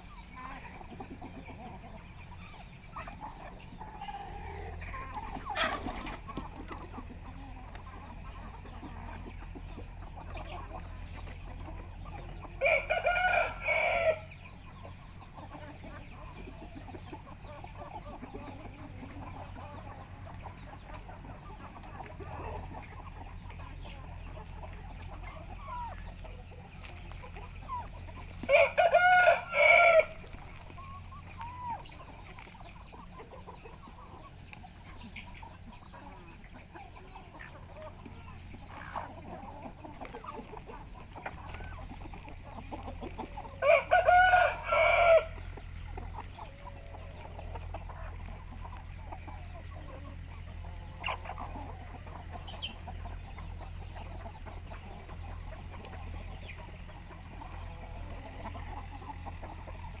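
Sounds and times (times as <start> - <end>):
chickens clucking: 0.0 - 60.0
rooster crowing: 12.6 - 14.3, 28.5 - 30.2, 43.6 - 45.4.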